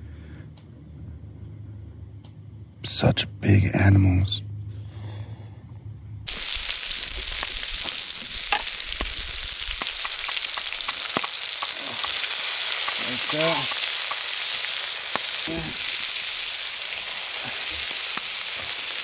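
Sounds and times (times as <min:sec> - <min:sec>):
low hum: 0:00.0 - 0:18.0
food sizzling on griddle: 0:06.3 - 0:19.0.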